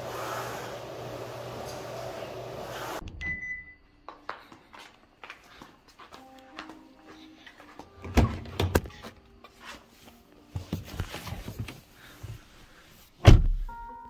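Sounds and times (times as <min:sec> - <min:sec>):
faint background music: 0:05.0 - 0:14.0
person climbing into seat: 0:10.5 - 0:11.9
car door shutting thunk: 0:13.2 - 0:13.6.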